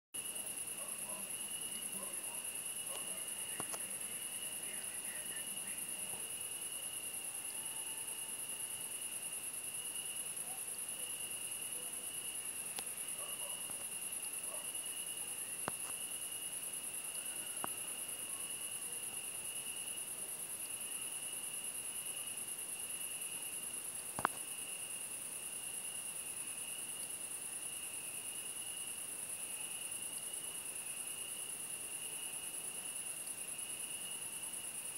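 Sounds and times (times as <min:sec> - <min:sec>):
crickets trilling: 0:00.2 - 0:34.9
faint clicks: 0:03.5 - 0:03.9, 0:24.0 - 0:24.4.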